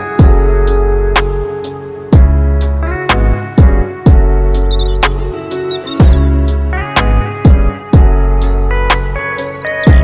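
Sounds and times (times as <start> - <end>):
sustained melodic notes: 0.0 - 10.0
deep bass: 0.2 - 1.5, 2.2 - 5.4, 6.0 - 9.2.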